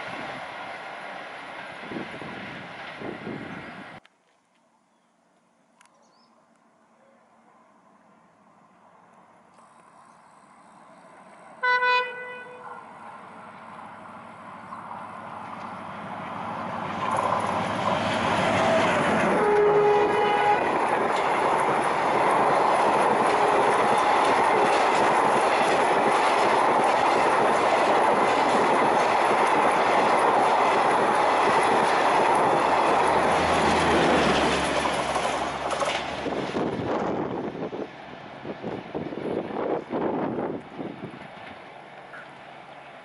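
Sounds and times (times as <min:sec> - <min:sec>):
locomotive horn: 0:11.6 - 0:12.9, 0:18.5 - 0:20.8, 0:23.2 - 0:23.8
train wheels clacking over rail joints: 0:16.8 - 0:36.8.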